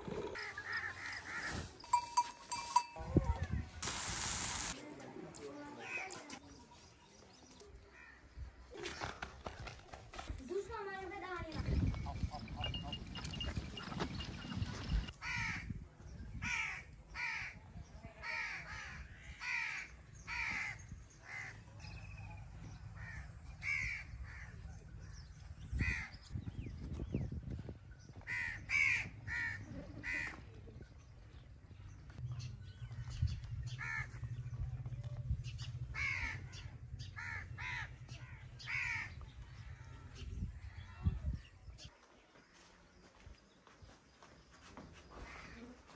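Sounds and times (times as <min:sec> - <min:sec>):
crows cawing: 0:18.2 - 0:21.5, 0:28.3 - 0:30.4, 0:36.0 - 0:39.3.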